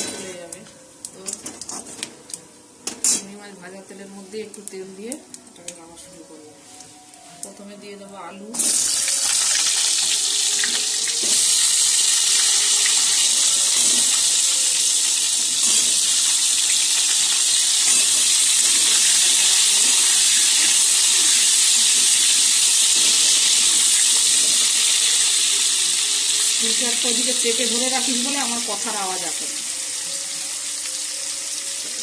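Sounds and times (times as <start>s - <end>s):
potatoes sizzling in hot oil: 8.6s - 32.0s.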